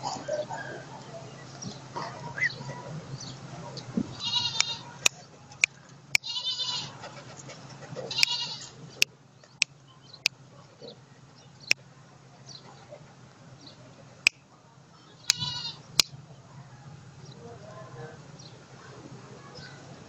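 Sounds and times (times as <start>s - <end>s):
animal bleat-like cries: 4.2s - 4.9s, 6.2s - 7.0s, 8.1s - 8.7s, 15.3s - 15.8s.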